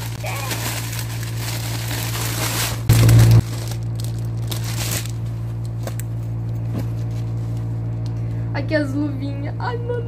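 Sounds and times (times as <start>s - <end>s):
plastic packaging crinkling: 0.0s - 6.0s
steady low hum: 0.0s - 10.0s.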